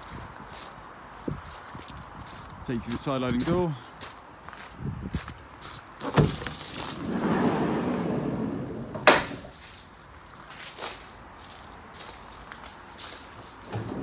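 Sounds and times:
sliding door clack: 6.0s - 9.6s
sliding door rolling rumble: 6.2s - 9.5s, 13.6s - 14.0s.

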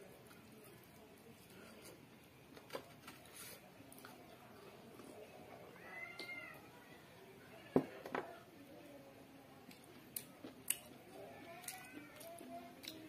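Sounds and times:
cat meowing: 5.8s - 6.6s.

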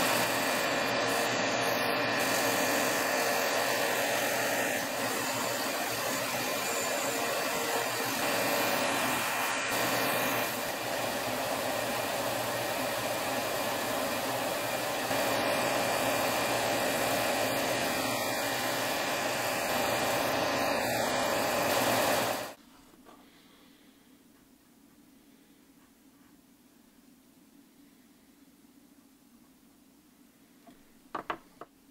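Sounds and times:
power sander grinding wood: 0.0s - 22.6s.

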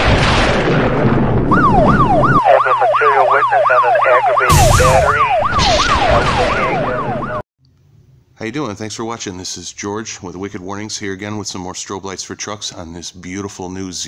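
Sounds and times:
siren fast yelp: 1.5s - 7.4s.

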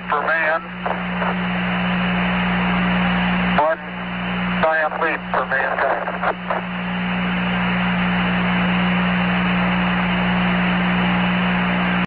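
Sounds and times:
radio static hiss: 0.0s - 7.8s
low steady hum: 0.0s - 12.0s.

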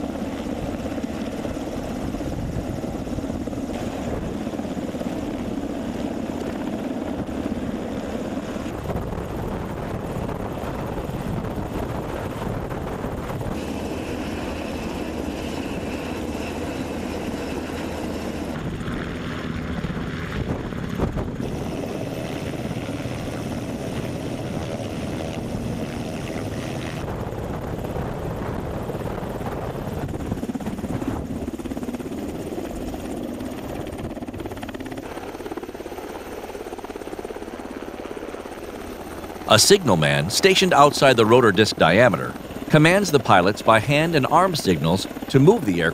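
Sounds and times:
helicopter hovering overhead: 0.0s - 45.9s.

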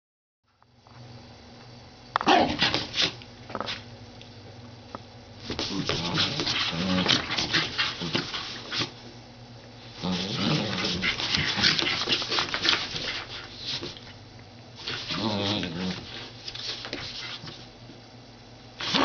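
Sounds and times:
dog growling: 5.6s - 8.3s, 10.0s - 12.2s, 15.0s - 16.1s
cardboard scraping and rustling: 10.0s - 14.1s.

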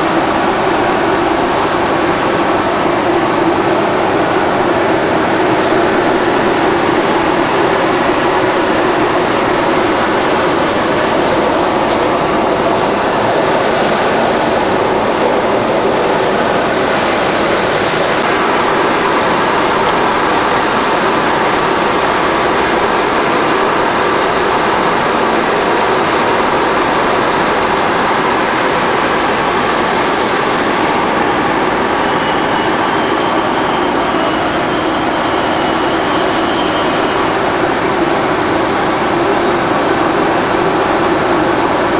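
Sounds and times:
faint high steady tones: 28.4s - 41.9s.

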